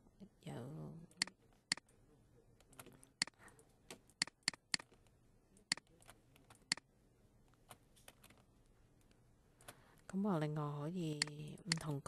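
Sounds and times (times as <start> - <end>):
computer mouse clicking: 1.1 - 1.9, 2.6 - 6.8, 11.2 - 12.0.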